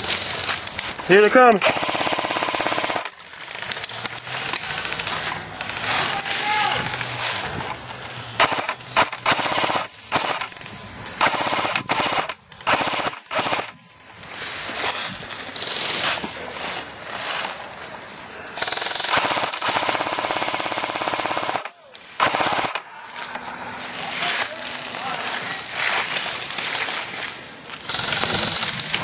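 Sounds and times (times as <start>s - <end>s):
airsoft guns firing automatic bursts: 1.1s - 6.1s, 8.3s - 10.6s, 11.2s - 13.8s, 18.6s - 22.9s, 27.8s - 29.0s.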